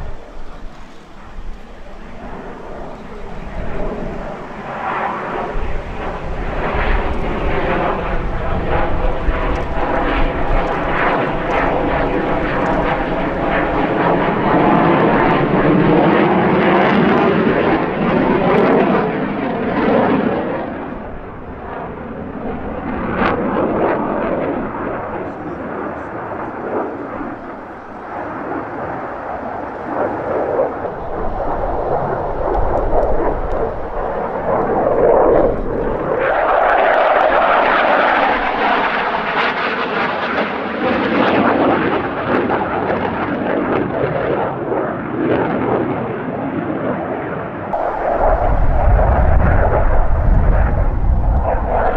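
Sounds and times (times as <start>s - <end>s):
fighter jet engine noise: 0.0s - 51.9s
deep loud rumble: 47.8s - 51.9s.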